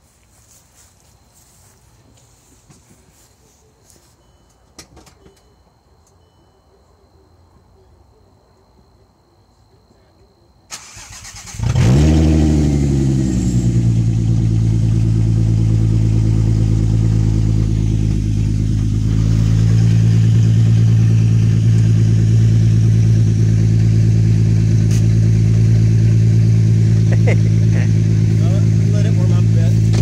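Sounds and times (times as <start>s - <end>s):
car engine cranking: 10.7s - 30.0s
car engine revving and idling: 10.8s - 30.0s.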